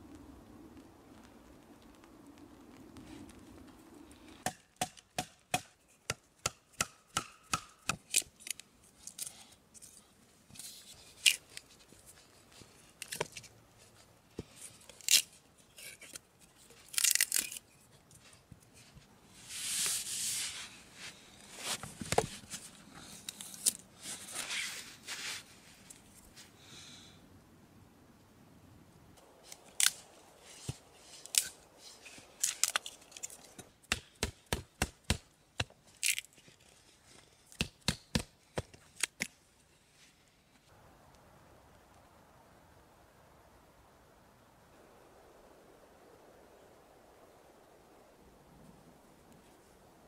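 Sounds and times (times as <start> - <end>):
knife scraping and tearing wood: 14.5 - 18.4, 29.4 - 39.3.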